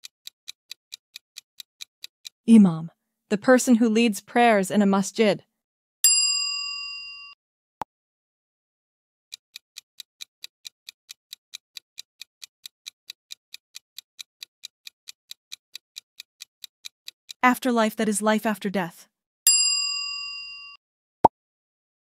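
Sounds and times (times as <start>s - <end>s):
clock ticking countdown timer: 0.0s - 2.8s, 9.3s - 18.7s.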